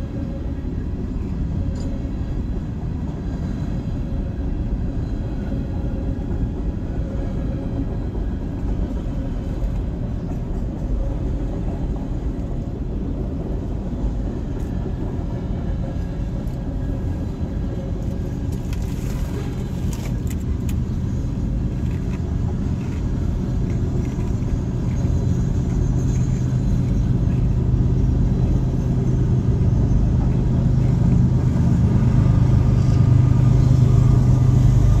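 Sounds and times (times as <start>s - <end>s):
freight train cars rumbling past: 0.0s - 35.0s.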